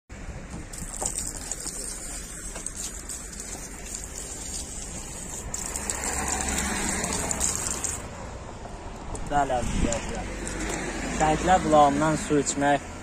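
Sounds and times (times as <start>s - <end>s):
tap water splashing on stone: 0.5s - 8.0s.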